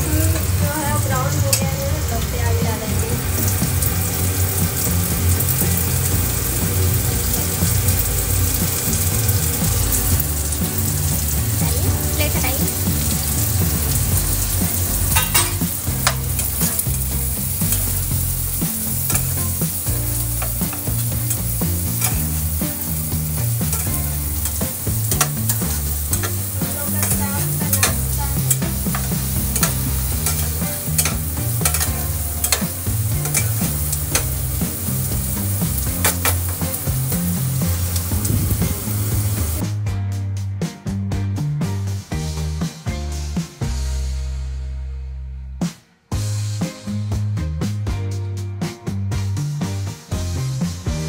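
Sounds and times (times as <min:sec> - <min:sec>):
onions sizzling in hot oil: 0:00.0 - 0:39.6
spatula clicking and scraping pan: 0:15.1 - 0:38.2.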